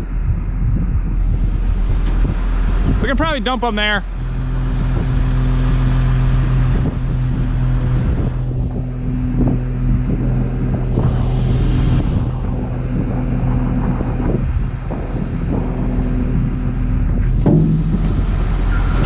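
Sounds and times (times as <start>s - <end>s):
loader diesel engine running: 0.0s - 19.0s
short clunks: 14.9s - 19.0s.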